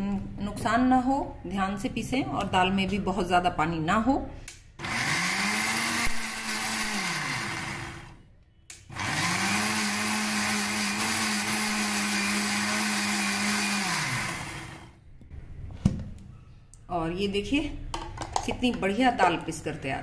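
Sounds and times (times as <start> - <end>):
mixer grinder motor grinding: 4.8 - 8.2, 8.9 - 15.0.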